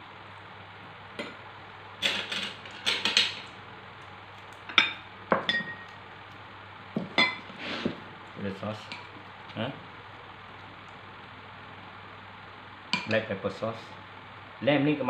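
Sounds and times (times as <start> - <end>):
glass bowls and spoon clinking: 4.7 - 6.0.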